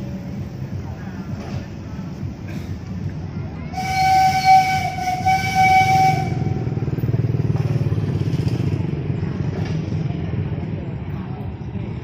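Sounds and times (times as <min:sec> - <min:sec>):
train carriages rumbling: 0:00.0 - 0:12.0
steam locomotive whistle: 0:03.7 - 0:06.8.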